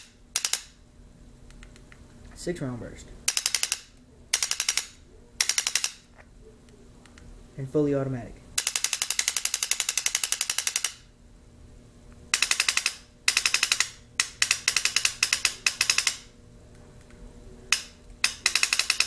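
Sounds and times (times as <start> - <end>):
paintball marker rapid firing: 3.3 - 6.0, 8.6 - 11.0, 12.4 - 16.3, 17.7 - 19.0.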